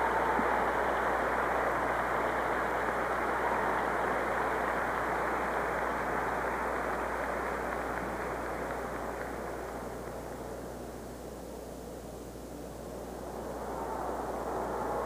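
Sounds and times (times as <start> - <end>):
low mains hum: 0.0 - 15.0.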